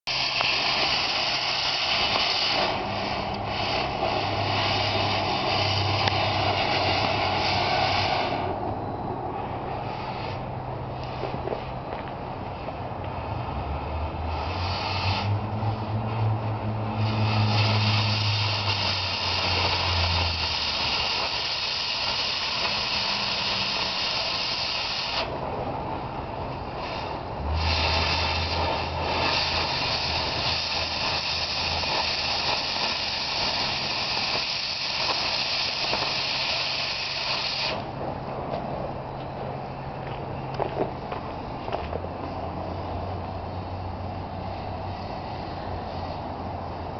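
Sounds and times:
cutting torch hissing: 0:00.0 - 0:46.9
low hum: 0:01.0 - 0:14.6.

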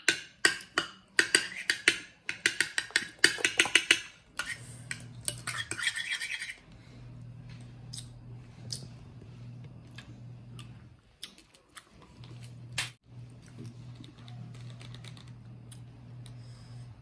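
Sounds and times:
spoon scraping stir: 0:04.4 - 0:06.6
faint low hum: 0:04.4 - 0:17.0.

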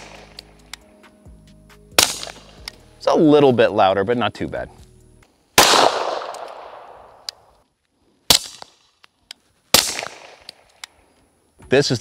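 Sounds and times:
suppressed pistol shots: 0:00.0 - 0:00.8, 0:02.0 - 0:02.8, 0:05.6 - 0:07.5, 0:08.3 - 0:08.8, 0:09.7 - 0:11.0.

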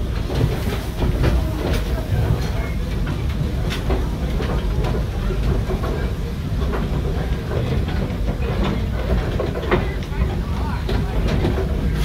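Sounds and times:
train wheels rumbling on rail: 0:00.0 - 0:12.0.

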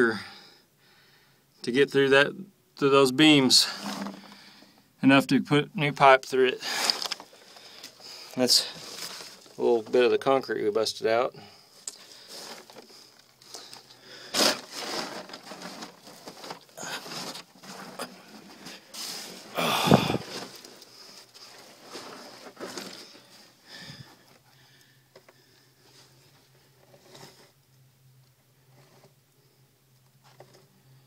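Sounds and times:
faint steady hum: 0:00.0 - 0:31.0
scuffs and scrapes in dirt: 0:06.6 - 0:10.3, 0:12.0 - 0:24.2.

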